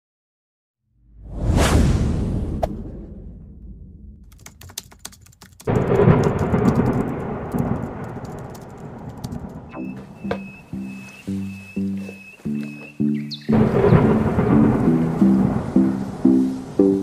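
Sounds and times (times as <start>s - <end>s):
burst of low rumbling noise: 1.1s - 4.3s, 5.7s - 9.7s, 13.5s - 16.8s
rapid crackle of sharp clicks: 4.3s - 9.8s.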